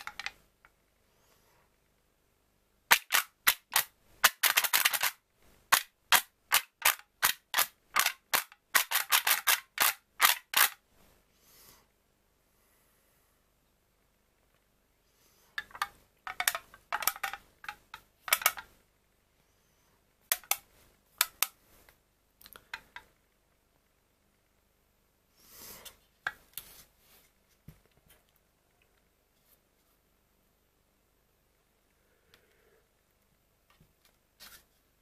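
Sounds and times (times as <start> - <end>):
plastic cups clicking and crackling: 0.0 - 0.4, 2.9 - 10.8, 15.6 - 18.7, 20.3 - 21.6.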